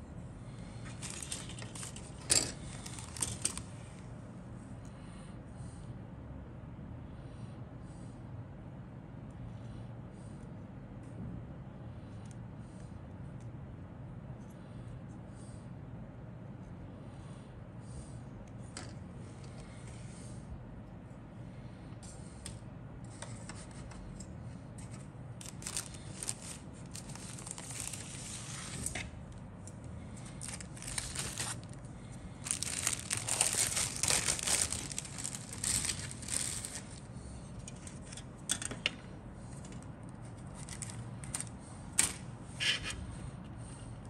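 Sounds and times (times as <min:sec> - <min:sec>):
plastic bag rustling and crinkling: 0:00.8 - 0:03.7, 0:25.4 - 0:29.1, 0:30.2 - 0:37.1.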